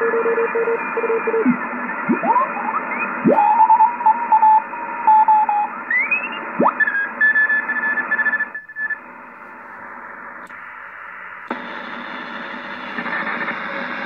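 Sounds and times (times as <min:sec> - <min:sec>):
radio band hiss: 0:00.0 - 0:05.0, 0:08.7 - 0:14.0.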